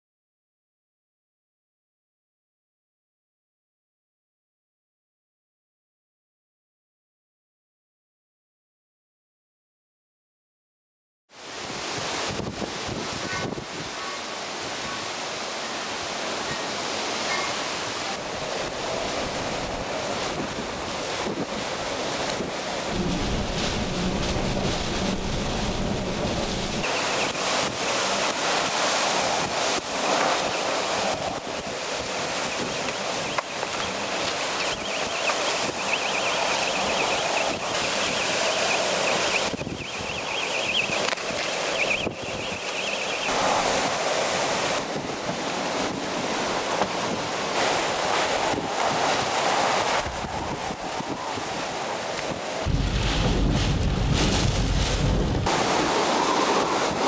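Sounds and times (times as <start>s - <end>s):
strong gusting wind: 11.4s - 57.0s.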